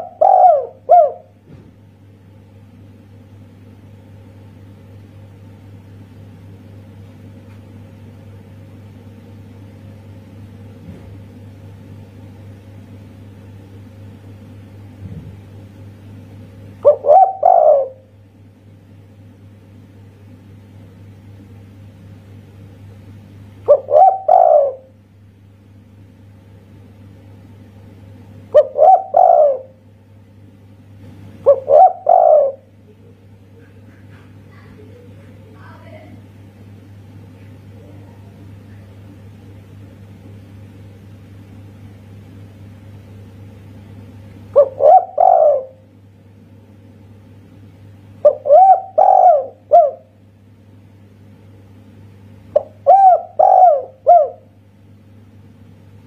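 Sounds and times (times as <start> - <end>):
dove cooing: 0.0 - 1.4, 16.8 - 18.1, 23.7 - 25.0, 28.5 - 29.8, 31.4 - 32.8, 44.5 - 45.9, 48.2 - 50.2, 52.6 - 54.5
steady low hum: 0.0 - 56.0.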